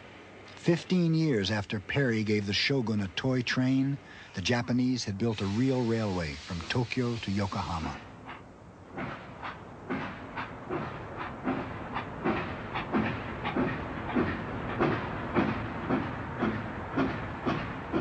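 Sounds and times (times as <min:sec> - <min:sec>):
steam locomotive chuffing: 0:00.7 - 0:18.0
hiss of steam: 0:04.4 - 0:08.2.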